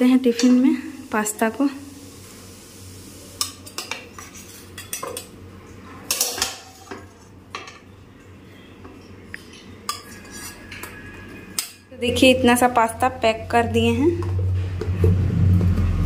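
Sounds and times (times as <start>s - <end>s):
steel spatula scraping a pan: 3.4s - 5.0s, 9.9s - 12.4s.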